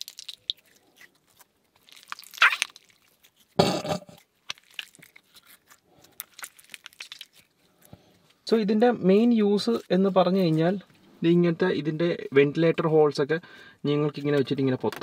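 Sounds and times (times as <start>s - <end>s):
slime clicking and squishing: 0.0s - 3.6s, 4.2s - 7.9s.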